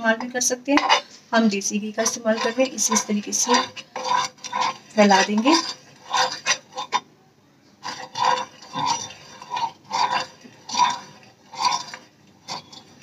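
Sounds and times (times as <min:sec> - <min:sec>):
metal spoon scraping pan: 0:00.0 - 0:07.1, 0:07.8 - 0:13.0.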